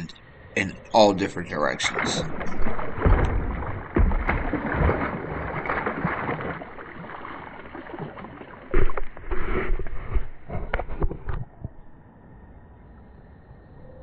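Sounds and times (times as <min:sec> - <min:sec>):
water splashing: 0:00.9 - 0:11.1
knocks on kayak: 0:02.4 - 0:06.3.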